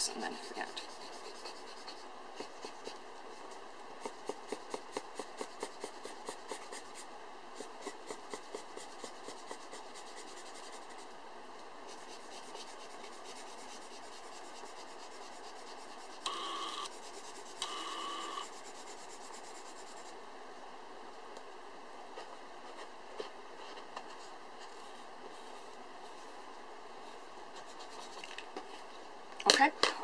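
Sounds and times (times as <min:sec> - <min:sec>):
pencil scratching on paper: 0:00.0 - 0:11.1, 0:11.9 - 0:20.2, 0:27.5 - 0:28.2.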